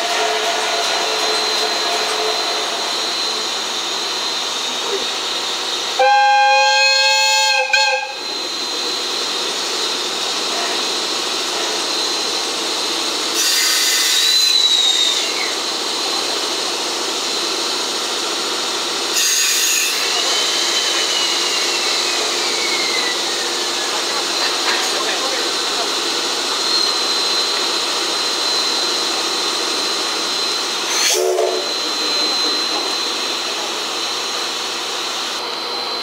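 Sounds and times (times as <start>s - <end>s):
locomotive whistle: 0.0s - 3.5s, 5.9s - 8.5s, 13.4s - 15.6s, 19.2s - 23.6s, 30.4s - 33.1s
loud burst of steam: 0.0s - 35.3s
steam locomotive hissing: 0.0s - 36.0s.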